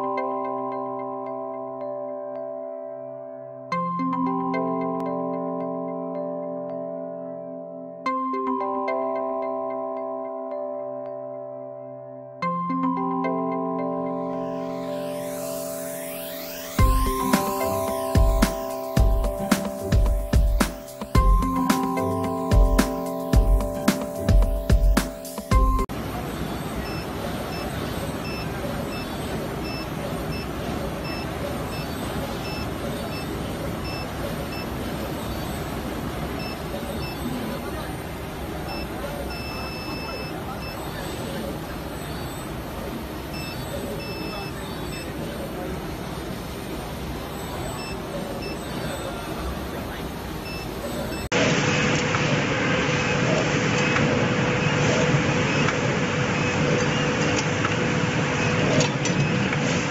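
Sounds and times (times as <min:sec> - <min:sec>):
short high electronic beep: 0:14.2 - 0:25.9, 0:26.5 - 0:35.7, 0:38.7 - 0:42.6, 0:43.3 - 0:45.4.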